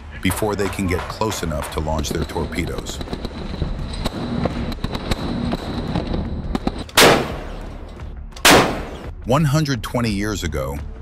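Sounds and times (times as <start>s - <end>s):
deck gun firing: 6.6s - 7.8s, 8.4s - 9.1s.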